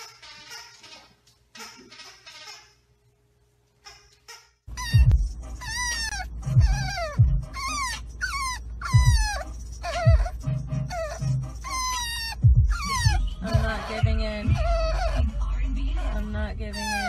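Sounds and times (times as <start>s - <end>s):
puppy whining: 3.9s - 17.0s.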